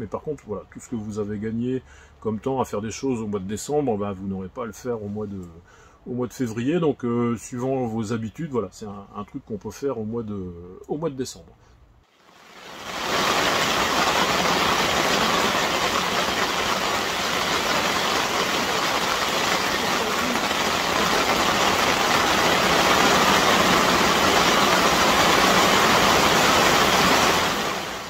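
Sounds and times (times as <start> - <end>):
hail drumming on plastic film: 12.2 - 28.0.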